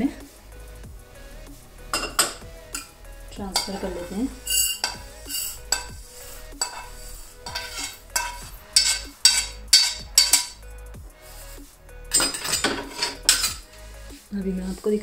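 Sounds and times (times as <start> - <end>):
metal pan knocking on bowl: 2.0 - 2.9, 3.5 - 6.0, 6.6 - 6.9, 7.5 - 10.6
seeds scraped from a pan: 3.6 - 10.6, 12.1 - 13.9.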